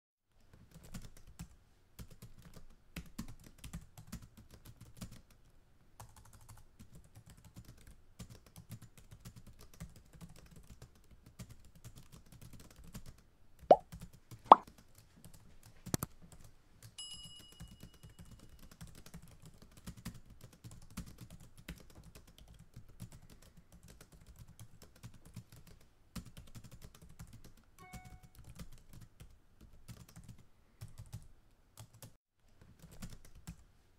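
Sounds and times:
keyboard typing: 0.7s - 5.4s, 6.0s - 13.9s, 14.5s - 16.0s, 17.8s - 32.1s, 32.7s - 33.6s
bell-like ding: 17.0s - 17.6s, 27.8s - 28.3s
short chime: 27.8s - 28.4s.

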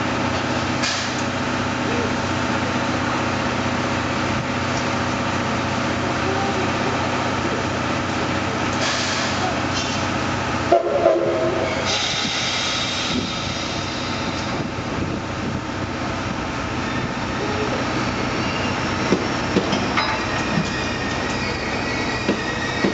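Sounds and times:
train rolling on rails: 0.0s - 22.9s
steam locomotive hissing: 0.3s - 3.9s, 6.0s - 22.9s
high wheel squeal: 11.2s - 13.8s, 18.0s - 19.2s, 19.9s - 22.9s.

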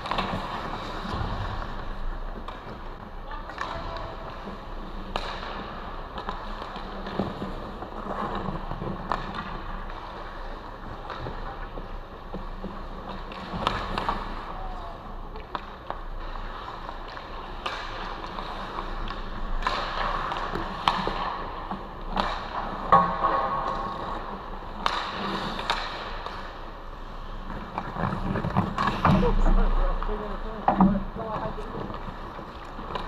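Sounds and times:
hockey sticks and puck clacking: 0.0s - 33.0s
skate blades scraping ice: 0.0s - 33.0s.

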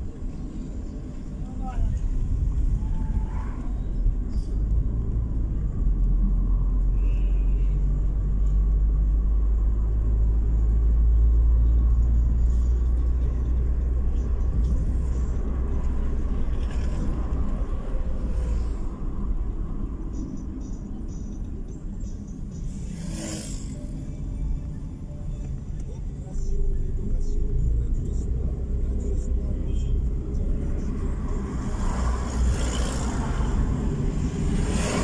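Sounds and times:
car road and engine noise: 0.0s - 35.0s.

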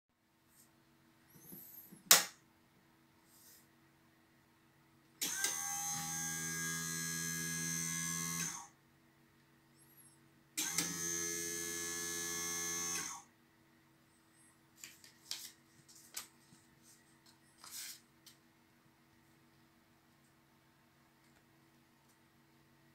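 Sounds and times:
small motor whirring: 5.2s - 8.7s, 9.9s - 13.2s.

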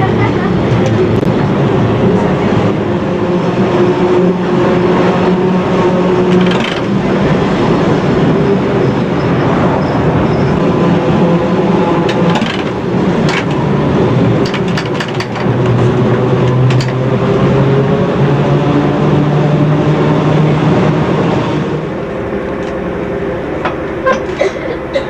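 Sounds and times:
tram motor hum: 0.0s - 25.0s
wheels rumbling on rails: 0.0s - 25.0s
sharp clicks and clanks: 6.3s - 7.0s, 12.0s - 13.6s, 14.4s - 15.8s, 16.4s - 17.0s.

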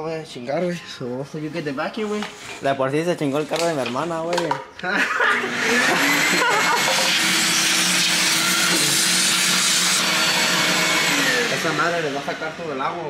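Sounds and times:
shop vacuum sucking water: 5.4s - 13.0s.

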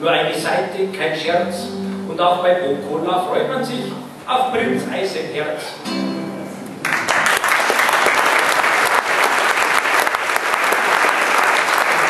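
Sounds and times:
audience applauding: 6.8s - 12.0s.

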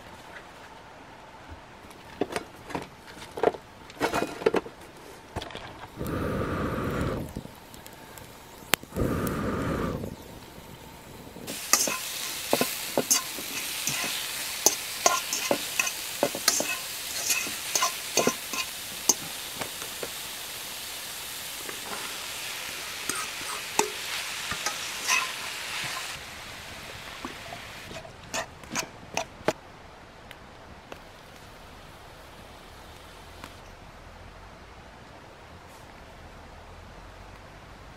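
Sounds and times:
meat sizzling in a wok: 6.0s - 29.3s
utensil scraping a pan: 11.5s - 19.4s, 21.7s - 26.2s, 27.2s - 29.4s.

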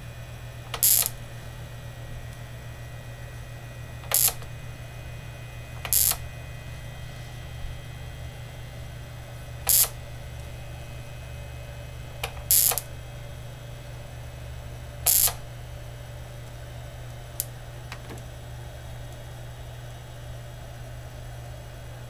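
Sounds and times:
low mains hum: 0.0s - 22.0s
sharp electrical snaps: 0.7s - 1.2s, 4.0s - 4.5s, 5.8s - 6.3s, 9.6s - 10.0s, 12.2s - 12.9s, 15.0s - 15.5s.

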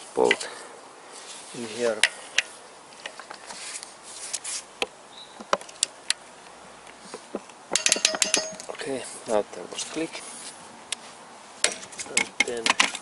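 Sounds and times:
torque wrench clicking over: 7.7s - 8.7s
wrench clicks and knocks: 7.7s - 8.7s.

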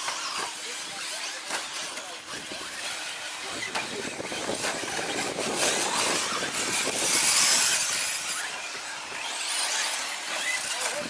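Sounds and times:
high electric motor whine: 0.0s - 11.0s.

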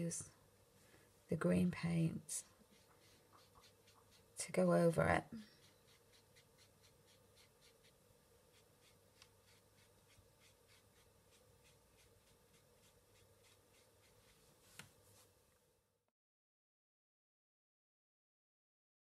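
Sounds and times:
paintbrush strokes on paper: 1.4s - 15.4s.

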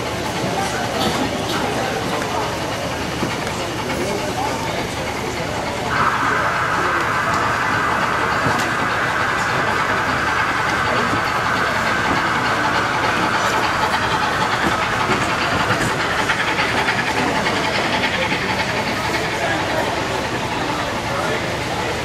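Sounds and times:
hall noise: 0.0s - 22.0s.

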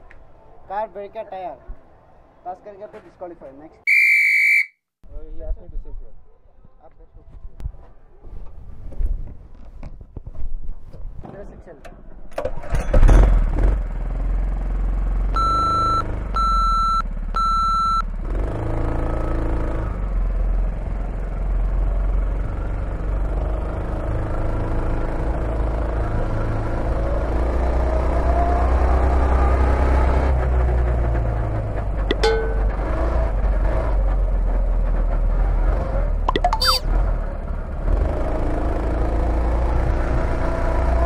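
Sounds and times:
short electronic beeps: 3.9s - 4.7s, 15.4s - 18.0s, 32.1s - 32.8s, 36.3s - 36.9s.

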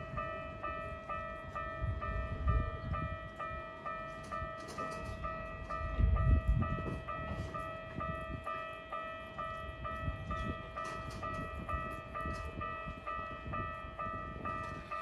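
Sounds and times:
level crossing warning bell: 0.0s - 15.0s.

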